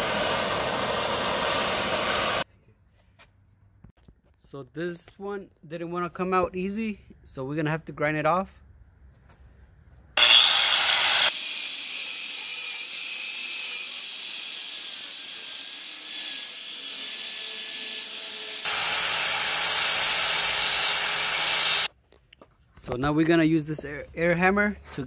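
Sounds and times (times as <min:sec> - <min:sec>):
angle grinder grinding metal: 0:10.2 - 0:21.9.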